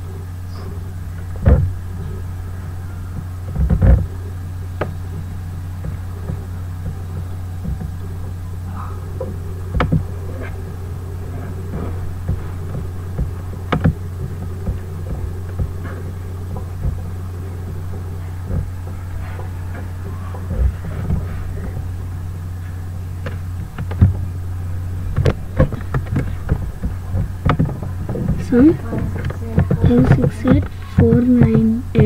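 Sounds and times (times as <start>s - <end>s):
low electrical hum: 0.0s - 32.0s
short knocks and clicks: 25.1s - 32.0s.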